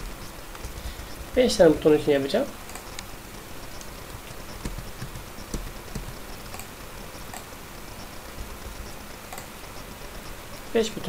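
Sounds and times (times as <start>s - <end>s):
steady hiss: 0.0s - 11.0s
mouse and keyboard clicks: 2.6s - 3.1s, 3.7s - 7.5s, 8.4s - 9.6s.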